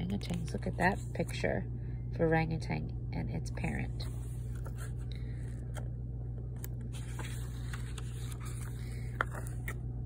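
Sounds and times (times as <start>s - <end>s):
low hum: 0.0s - 10.0s
book pages turning: 4.0s - 9.9s.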